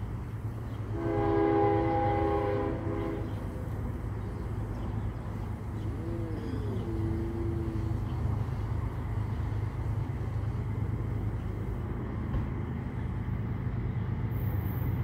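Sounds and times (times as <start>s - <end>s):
locomotive air horn: 0.9s - 3.5s.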